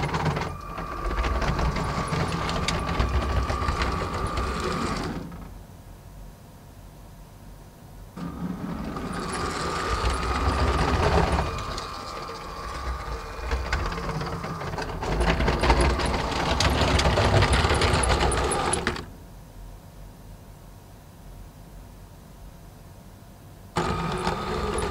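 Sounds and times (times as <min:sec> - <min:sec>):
wheels clicking and rattling: 0:00.0 - 0:05.4, 0:08.2 - 0:19.1, 0:23.8 - 0:24.9
toy train motor whine: 0:00.0 - 0:05.5, 0:08.2 - 0:19.1, 0:23.8 - 0:24.9.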